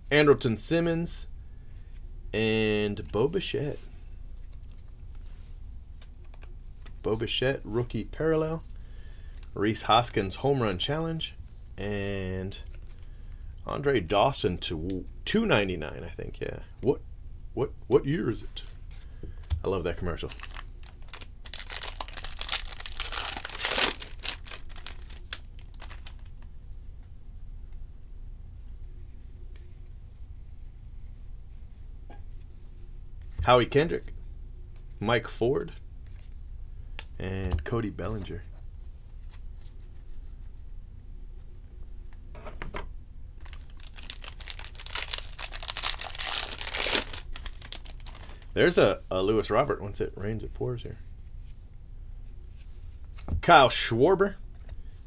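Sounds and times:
wrapper tearing and crinkling: 20.2s - 26.5s, 43.4s - 48.5s.

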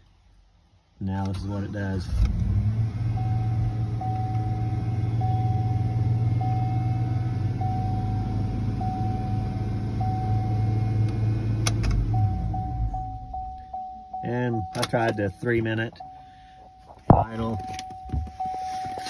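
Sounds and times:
car engine high idle: 2.8s - 13.4s
warning chime: 3.1s - 11.0s, 12.0s - 19.0s.

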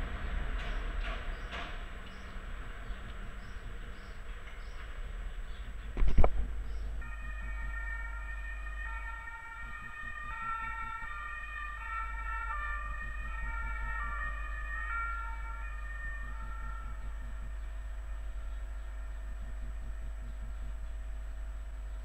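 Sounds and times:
low rumble: 0.0s - 22.0s
siren stepping in pitch: 7.0s - 19.4s.

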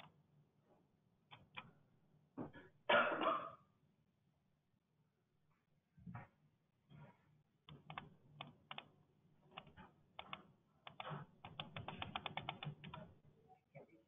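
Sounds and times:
faint keyboard typing: 7.7s - 13.2s.

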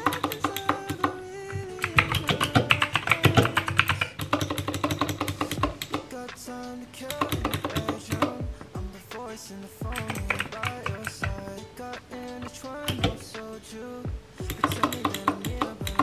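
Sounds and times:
mechanical keyboard typing: 0.0s - 8.4s, 9.9s - 11.4s, 14.5s - 16.0s
plucked guitar background music: 0.0s - 16.0s.

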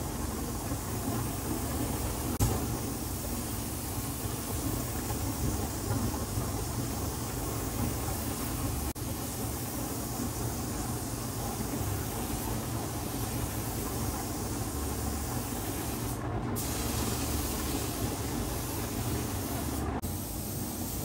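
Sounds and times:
paint spray gun hissing: 1.2s - 6.4s, 11.0s - 21.0s.

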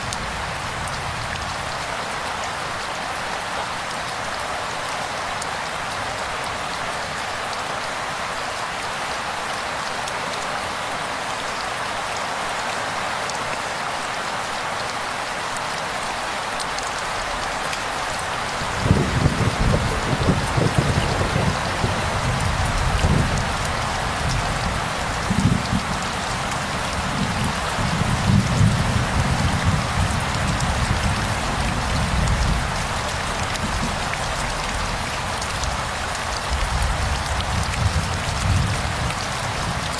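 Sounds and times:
heavy rain on leaves: 0.0s - 39.9s
thunder rumbling: 18.8s - 23.5s.

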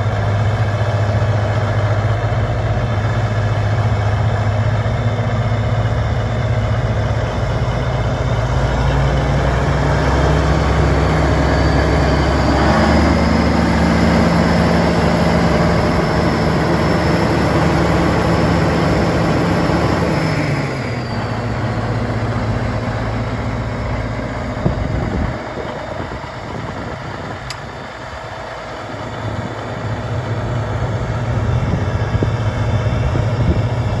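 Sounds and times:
tractor diesel engine idling: 0.0s - 34.0s
sharp click: 27.4s - 27.7s.

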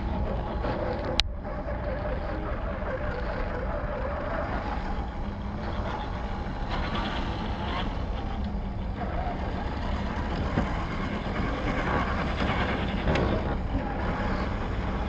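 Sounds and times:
low steady hum: 0.0s - 15.0s.

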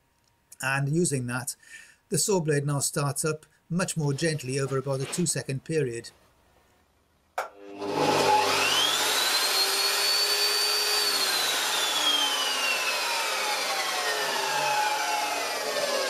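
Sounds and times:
table saw motor whine: 7.4s - 16.0s.

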